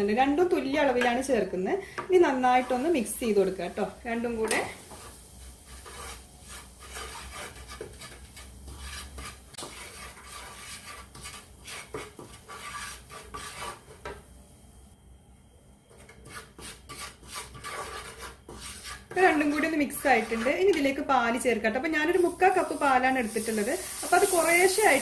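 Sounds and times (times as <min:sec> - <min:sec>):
wooden spatula scraping frying pan: 0:02.0 - 0:14.2, 0:15.9 - 0:21.1.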